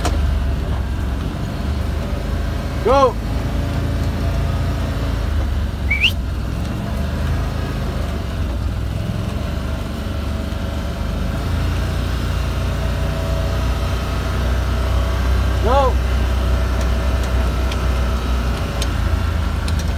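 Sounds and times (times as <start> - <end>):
vehicle engine running: 0.0 - 19.9
short rising whistle: 5.9 - 6.2.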